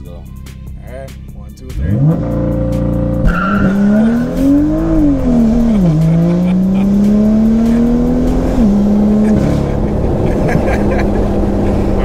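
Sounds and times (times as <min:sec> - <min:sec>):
car engine revving: 0:00.4 - 0:12.0
tire squeal: 0:03.2 - 0:05.1.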